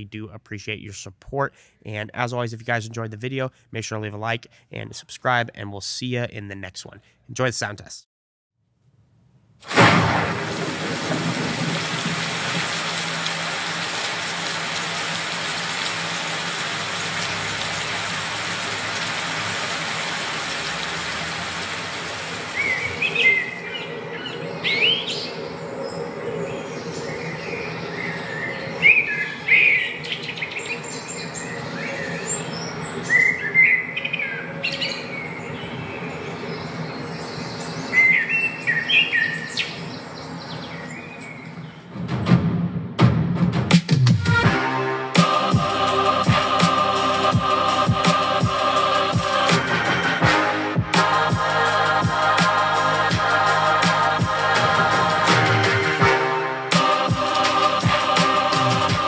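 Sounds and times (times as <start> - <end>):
steady hiss of noise: 9.0 - 41.9
birds chirping: 12.8 - 42.0.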